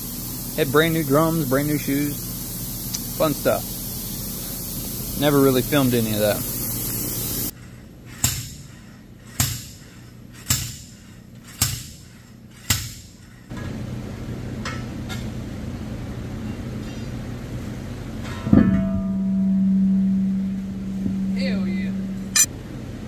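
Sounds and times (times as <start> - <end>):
steady low hum: 0.0 - 23.0
metal-on-metal strikes ringing: 18.2 - 22.5.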